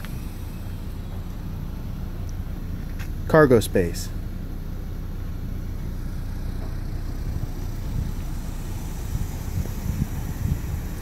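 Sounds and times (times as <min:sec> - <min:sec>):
low mechanical hum: 0:00.0 - 0:11.0
soft low bumps: 0:04.2 - 0:11.0.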